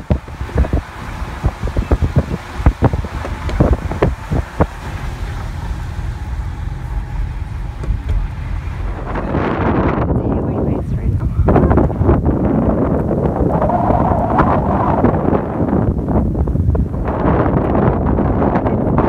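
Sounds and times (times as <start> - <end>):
knocks and thumps: 0.0 - 10.1
broad rush of noise: 0.0 - 19.0
road and tyre rumble: 0.0 - 19.0.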